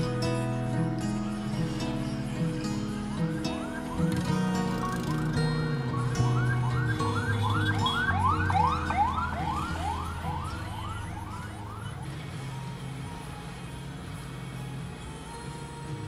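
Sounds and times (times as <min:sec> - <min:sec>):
siren yelping: 0:02.9 - 0:13.4.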